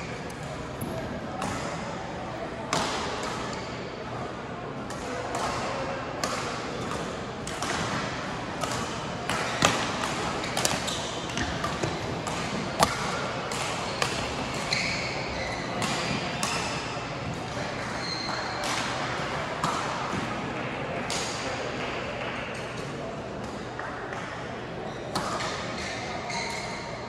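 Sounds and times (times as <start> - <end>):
large hall background noise: 0.0 - 27.0
rackets hitting shuttlecock: 4.9 - 20.3
shoes squeaking on court: 13.8 - 16.2, 17.7 - 18.6.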